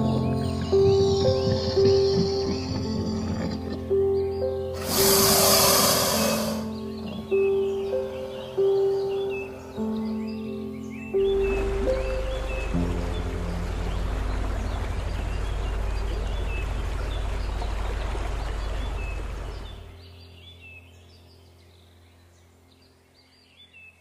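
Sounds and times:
small birds chirping: 0.0s - 24.0s
rushing noise with low rumble: 12.8s - 19.8s.

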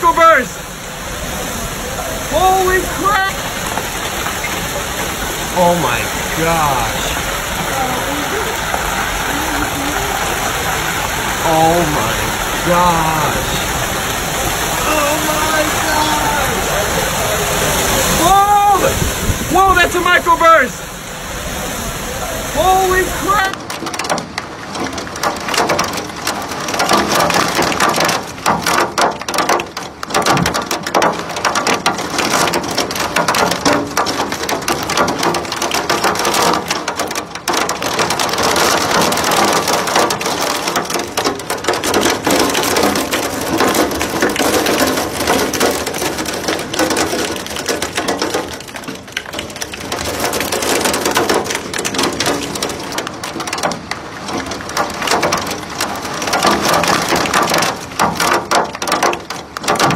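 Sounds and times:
heavy wind-driven rain on window: 0.0s - 59.9s.

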